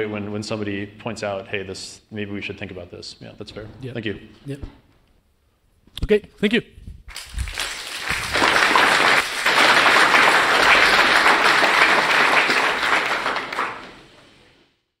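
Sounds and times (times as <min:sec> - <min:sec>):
audience applauding: 0:07.1 - 0:14.4.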